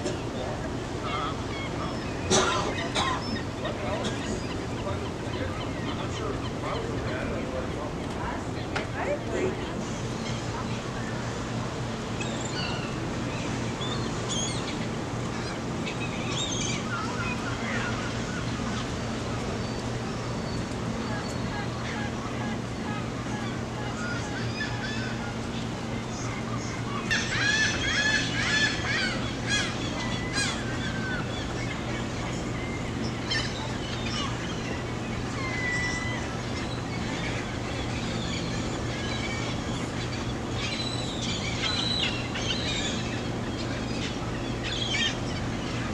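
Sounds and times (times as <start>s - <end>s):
gulls calling: 0.0s - 45.9s
steady background noise: 0.0s - 45.9s.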